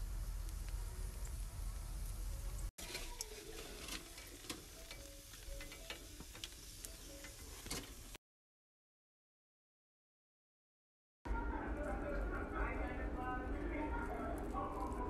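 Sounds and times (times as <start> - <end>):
meat sizzling and crackling: 0.0 - 8.2.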